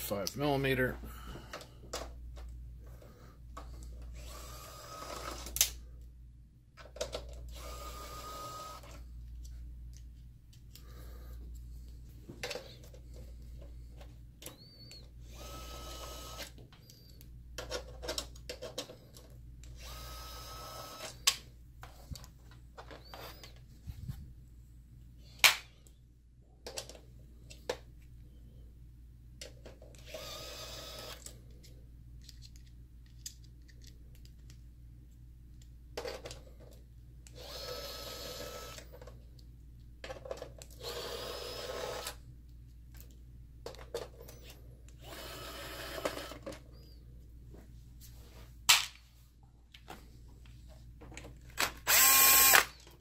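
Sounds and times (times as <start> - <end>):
electric screwdriver whirring: 4.2 - 5.6, 7.5 - 9.0, 14.5 - 16.6, 19.7 - 21.2, 30.0 - 31.2, 37.4 - 38.9, 40.8 - 42.2, 45.0 - 46.4, 51.8 - 52.8.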